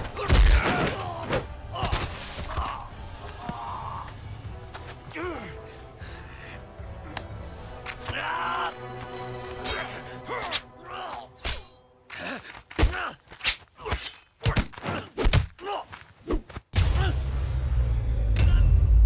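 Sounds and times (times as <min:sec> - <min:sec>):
fighters grunting and shouting: 0:00.0 - 0:04.2, 0:05.0 - 0:05.8, 0:07.9 - 0:09.0, 0:09.6 - 0:11.4, 0:12.1 - 0:16.0
film score music: 0:00.0 - 0:19.0.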